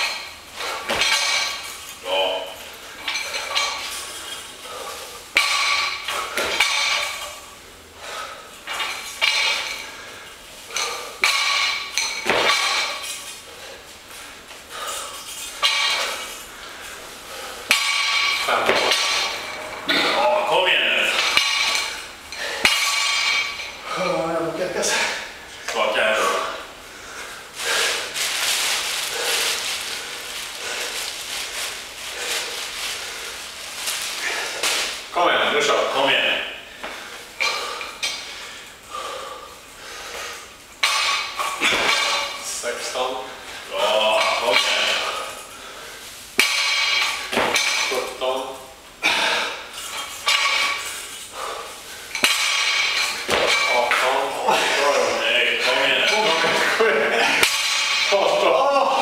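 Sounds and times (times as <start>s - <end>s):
barbell plates clanking: 0.0s - 7.5s, 8.6s - 13.8s, 14.7s - 24.2s, 40.0s - 43.0s, 43.7s - 45.4s, 46.4s - 48.4s, 49.0s - 58.5s
person panting hard: 26.9s - 28.2s, 36.8s - 40.5s, 51.3s - 52.1s.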